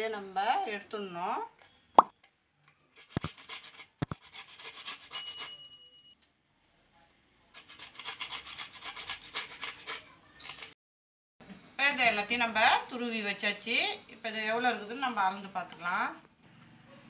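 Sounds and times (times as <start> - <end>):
grating on metal hand grater: 3.0 - 5.3, 7.6 - 10.8.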